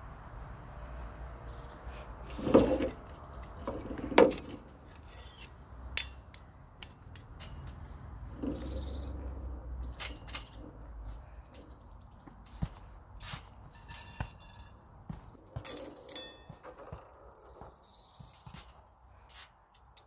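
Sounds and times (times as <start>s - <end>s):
metallic clink: 5.0s - 8.9s, 15.6s - 16.9s.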